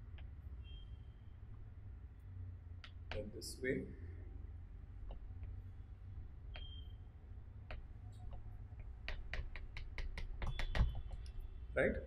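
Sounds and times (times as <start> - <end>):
steady low hum: 0.0 - 12.0
chalk tapping on blackboard: 7.7 - 11.3.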